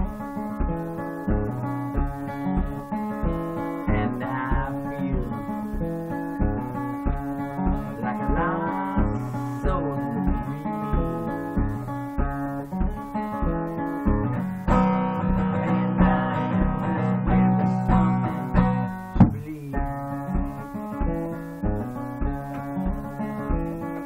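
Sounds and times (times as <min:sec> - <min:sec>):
acoustic guitar strumming: 0:00.0 - 0:24.0
low rhythmic thump: 0:00.0 - 0:24.0.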